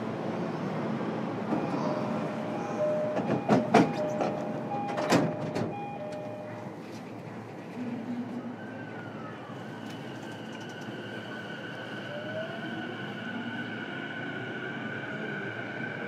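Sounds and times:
train rumble: 0.0 - 16.0.

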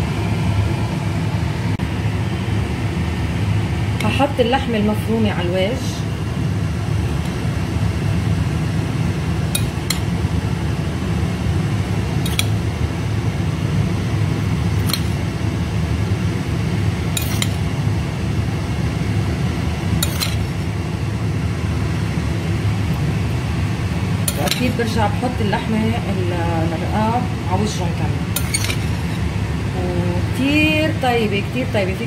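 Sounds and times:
low hum: 0.0 - 32.0
metal spoon clinking on glass bowl: 17.2 - 17.6.

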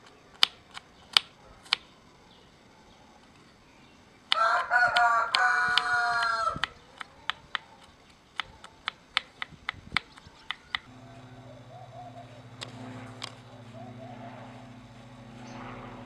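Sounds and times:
rooster crowing: 4.3 - 6.8, 10.8 - 12.7.

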